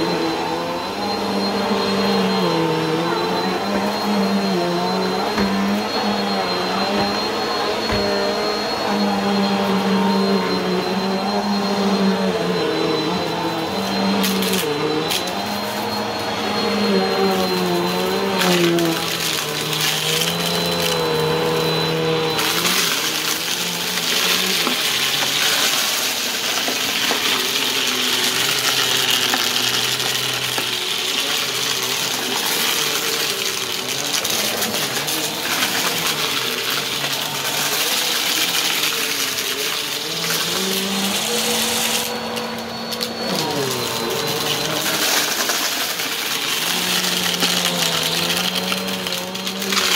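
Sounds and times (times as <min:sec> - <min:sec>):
vacuum cleaner motor: 0:00.0 - 0:49.9
debris rattling up vacuum nozzle: 0:17.4 - 0:42.3, 0:42.9 - 0:49.9.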